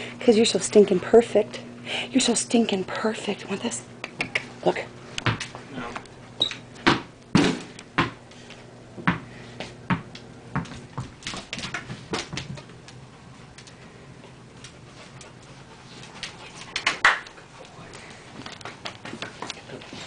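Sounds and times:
ball knocking on floor: 9.9 - 12.6.

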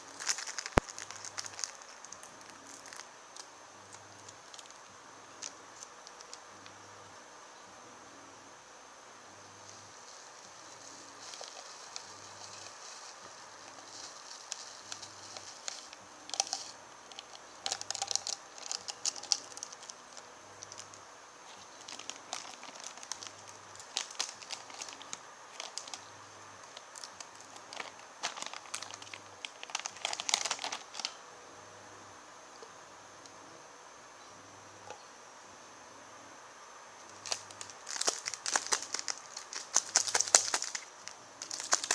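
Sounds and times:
plastic packaging crinkling: 0.0 - 6.4, 9.6 - 31.2, 37.1 - 41.9.

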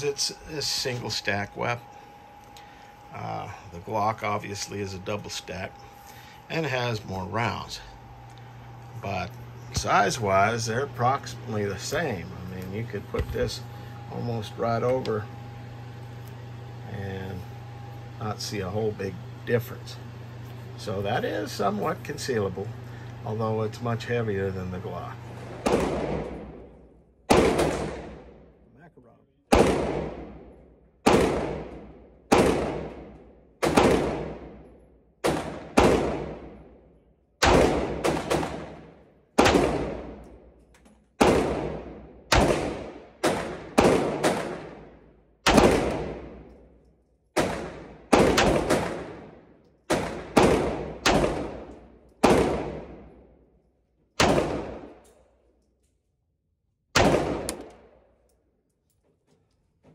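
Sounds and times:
pistol shots echoing indoors: 25.4 - 28.7, 29.5 - 56.1, 56.9 - 58.7.

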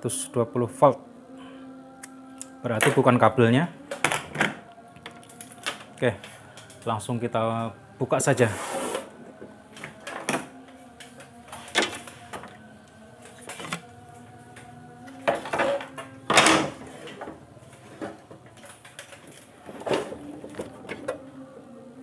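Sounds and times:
faint steady hum: 0.0 - 22.0
objects clattering on wooden workbench: 8.8 - 12.6, 13.3 - 13.9, 15.1 - 21.2.

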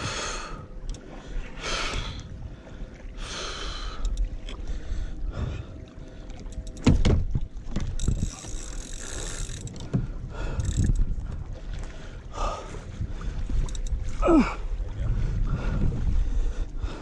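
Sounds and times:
water slapping against kayak hull: 6.3 - 16.3
hard knocks on hull: 6.8 - 7.9.

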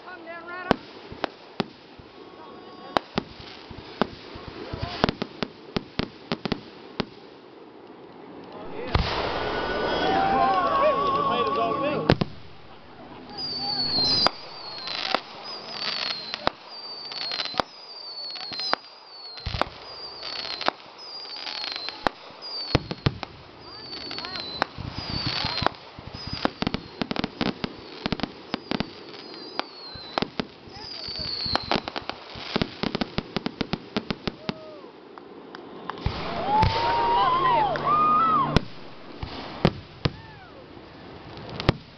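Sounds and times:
firework bangs: 0.0 - 7.4, 8.4 - 40.6, 41.2 - 41.9
firework crackle: 0.0 - 41.9
sharp crack: 8.1 - 17.8
firework launch thumps: 8.5 - 10.7, 12.1 - 16.6, 38.4 - 40.3
falling firework whistles: 8.6 - 35.0, 35.8 - 40.5
faint pops: 12.1 - 16.5.

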